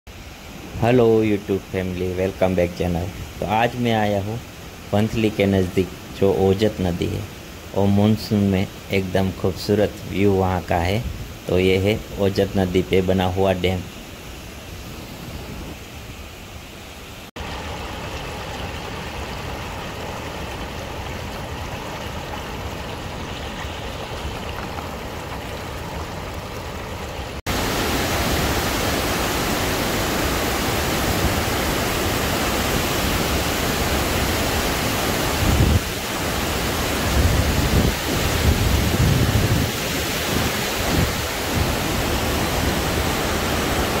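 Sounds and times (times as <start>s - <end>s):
water rushing over weir: 17.3s - 44.0s
low gusty rumbles: 36.9s - 42.5s.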